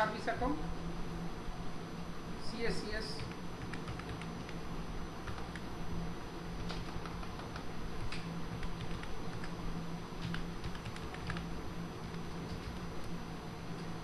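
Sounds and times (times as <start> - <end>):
steady low hum: 0.0 - 14.0
keyboard typing: 3.2 - 4.6, 5.2 - 5.7, 6.6 - 9.6, 10.2 - 12.9.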